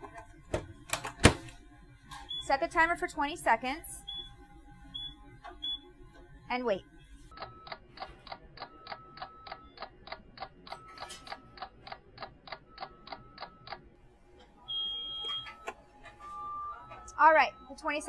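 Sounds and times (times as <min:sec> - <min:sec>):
microwave beep: 0:02.2 - 0:02.6, 0:04.0 - 0:05.9, 0:07.3 - 0:13.9, 0:14.6 - 0:18.0
clock ticking: 0:07.4 - 0:10.8, 0:11.5 - 0:13.8.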